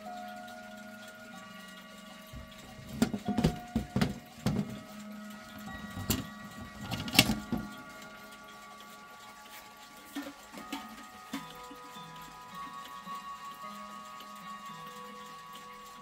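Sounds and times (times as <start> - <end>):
knocks and clicks of clock handling: 2.3 - 4.9, 5.8 - 7.8.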